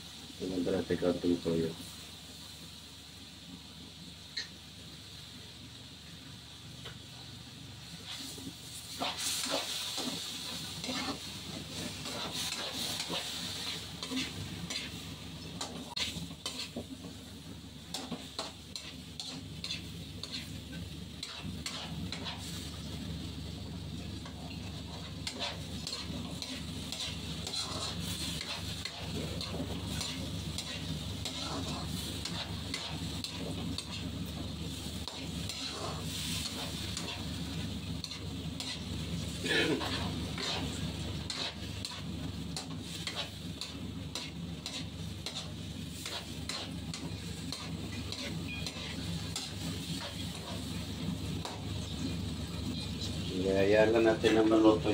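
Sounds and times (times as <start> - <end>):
food sizzling in a pan: 0.0 - 54.9
metal spatula scraping a pan: 8.0 - 15.0, 15.6 - 16.8, 17.9 - 22.7, 24.7 - 51.6.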